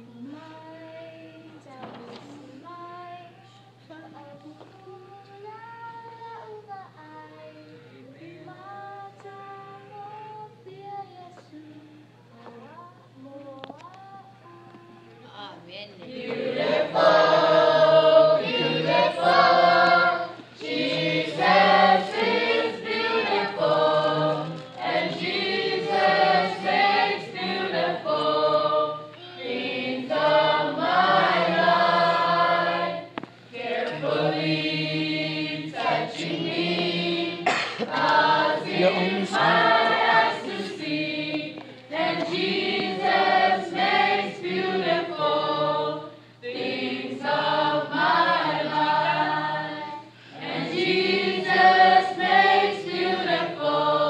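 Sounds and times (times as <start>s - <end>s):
choir singing: 16.1s - 54.0s.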